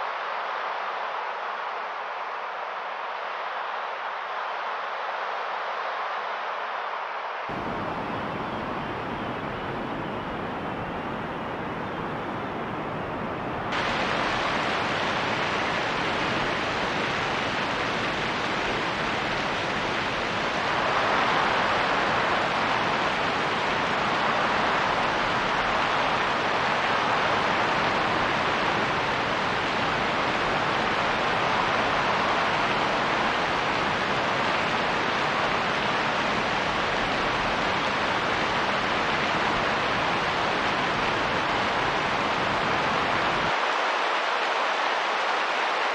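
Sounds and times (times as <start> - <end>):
steady rain: 0.0 - 45.9
wind noise: 7.5 - 43.6.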